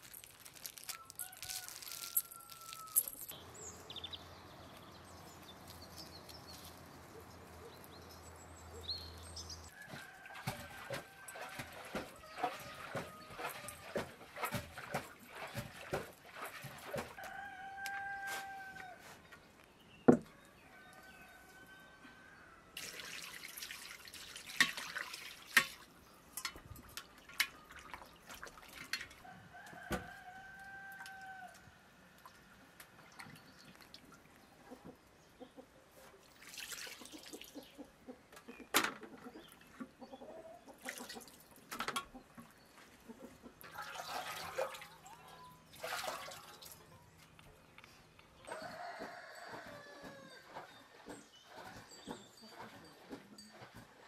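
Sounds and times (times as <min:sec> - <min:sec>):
splashing and dripping water: 0:00.0 - 0:03.4, 0:05.2 - 0:18.6, 0:22.8 - 0:29.3, 0:32.2 - 0:34.8, 0:36.0 - 0:37.8, 0:40.7 - 0:42.2, 0:43.2 - 0:54.0
water poured from jug: 0:00.0 - 0:03.4, 0:22.8 - 0:25.9, 0:36.2 - 0:37.6, 0:43.6 - 0:45.1, 0:45.7 - 0:46.8.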